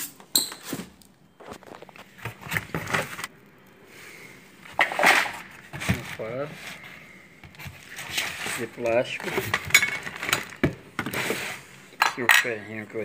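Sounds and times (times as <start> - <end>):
rustling and scraping in box: 0.6 - 3.3, 4.6 - 11.8.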